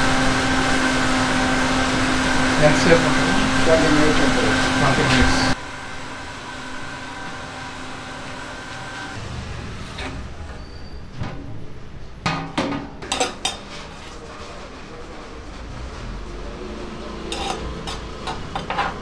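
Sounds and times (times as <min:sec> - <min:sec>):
steady hum: 0:00.0 - 0:08.6
metal pot lid clanking: 0:12.2 - 0:13.7, 0:17.2 - 0:19.0.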